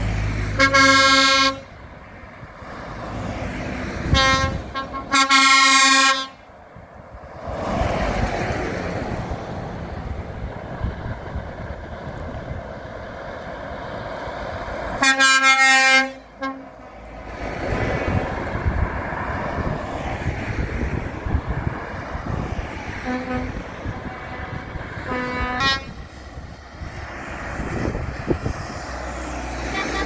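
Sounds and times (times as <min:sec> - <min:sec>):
passing trucks and cars: 0:00.0 - 0:30.0
truck air horn blasts: 0:00.6 - 0:01.8, 0:04.1 - 0:06.5, 0:15.0 - 0:17.1, 0:23.0 - 0:26.1, 0:29.6 - 0:30.0.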